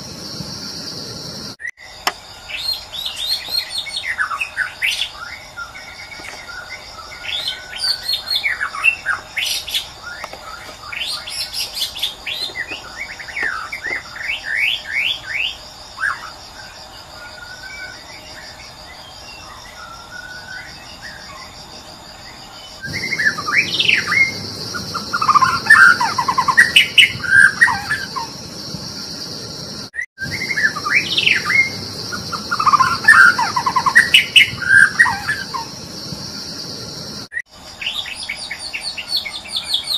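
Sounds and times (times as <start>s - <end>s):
high insect buzz: 0.0s - 39.7s
bird singing whistles and trills: 22.8s - 28.4s, 30.2s - 35.7s.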